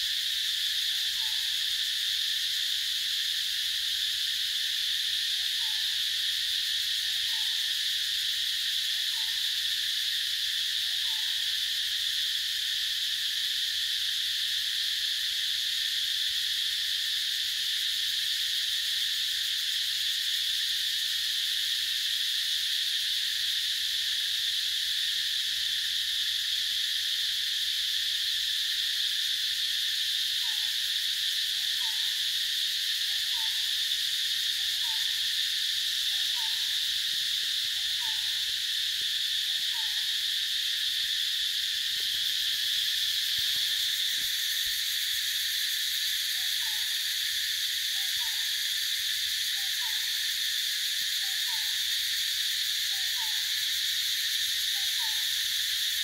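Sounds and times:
insects droning: 0:00.0 - 0:56.0.

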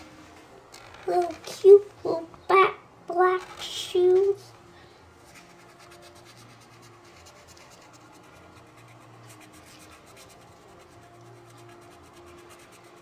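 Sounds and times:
marker scratching on paper: 0:05.3 - 0:13.0.

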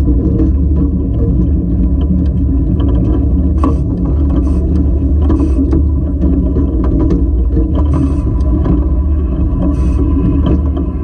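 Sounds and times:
locomotive rolling over rails: 0:00.0 - 0:11.0
wheels and rods clanking: 0:00.0 - 0:11.0.

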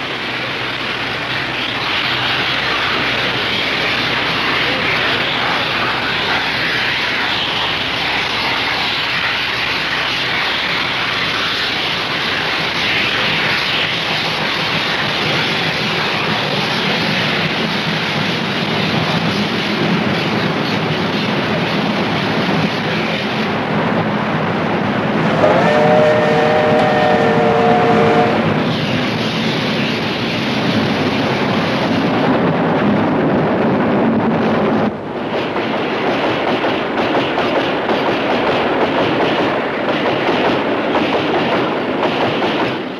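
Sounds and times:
steam locomotives rushing past: 0:00.0 - 0:42.9
steam whistle chord: 0:25.3 - 0:28.6.

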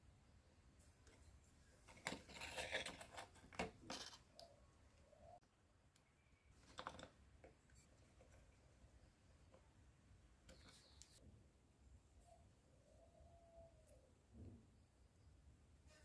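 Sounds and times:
can metal crinkling: 0:01.8 - 0:04.4
screwdriver clicking and scraping: 0:01.9 - 0:04.4.

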